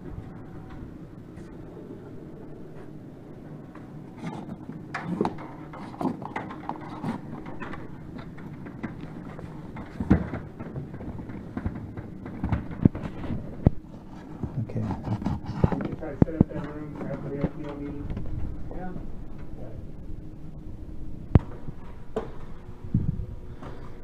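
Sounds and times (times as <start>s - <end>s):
steady low hum: 0.0s - 24.0s
cable knocking and rubbing: 4.2s - 18.6s.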